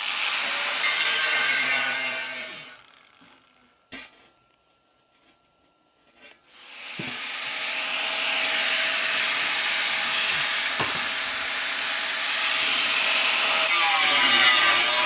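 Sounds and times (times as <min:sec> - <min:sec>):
angle grinder cutting metal: 0:00.0 - 0:03.5, 0:06.6 - 0:15.0.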